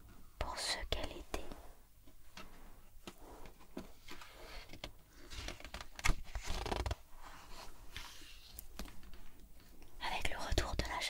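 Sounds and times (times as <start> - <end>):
page flipping: 4.1 - 9.1.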